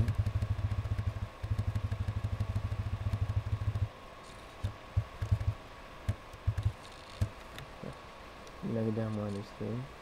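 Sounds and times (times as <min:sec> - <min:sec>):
low thumps: 0:00.0 - 0:03.9, 0:04.6 - 0:07.4.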